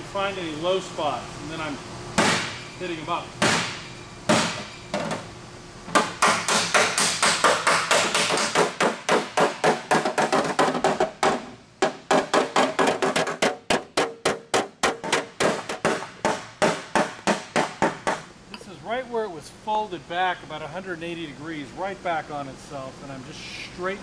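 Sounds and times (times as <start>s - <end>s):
hammer striking metal panel: 5.9s - 18.3s.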